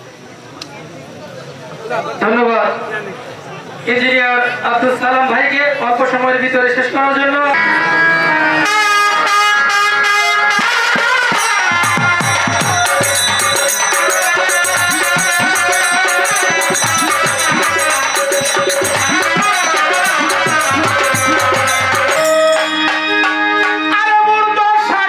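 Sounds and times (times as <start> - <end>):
harmonium: 3.9 - 25.0
trumpet: 7.6 - 25.0
fast hand-drum strokes: 10.5 - 23.9.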